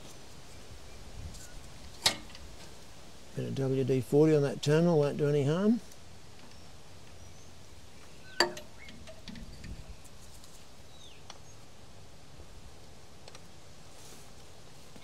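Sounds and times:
faint bird chirps: 6.5 - 10.0.

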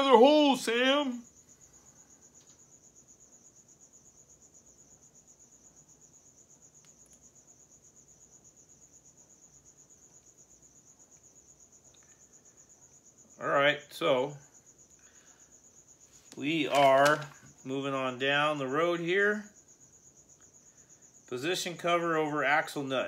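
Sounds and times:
cricket chirping: 0.0 - 23.0
faint small ticks: 2.3 - 2.7, 6.7 - 7.5, 11.0 - 12.4.

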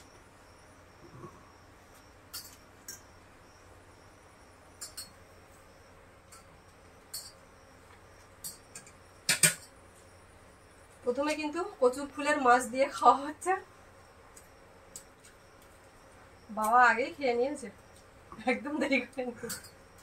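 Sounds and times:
insects chirping: 0.0 - 20.0
plates and utensils clinking: 8.4 - 9.7, 19.4 - 19.8.

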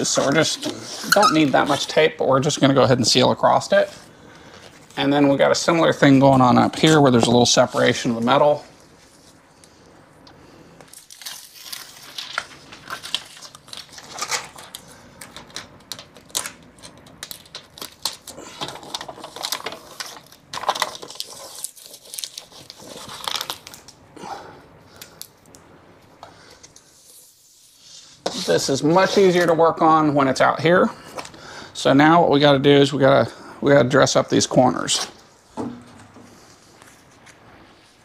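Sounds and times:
foil tape crinkling and tearing: 10.9 - 24.0.

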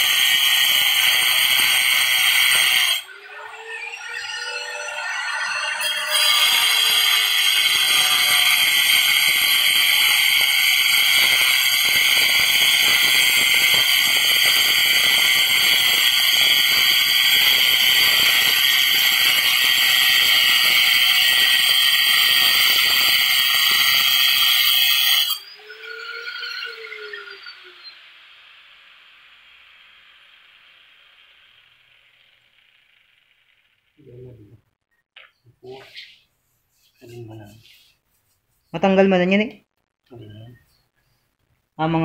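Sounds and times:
angle grinder cutting tile grout: 0.0 - 33.5
grinder disc winding down: 0.0 - 34.3.

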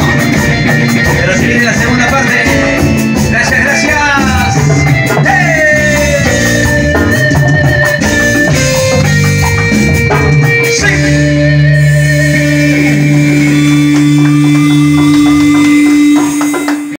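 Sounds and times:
latin band playing: 0.0 - 16.9
percussion hits ringing: 12.3 - 16.9.

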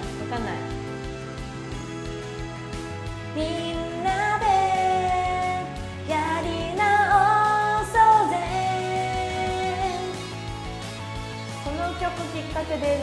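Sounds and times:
pop karaoke backing track: 0.0 - 13.0
woman singing: 3.3 - 10.4, 11.6 - 13.0.

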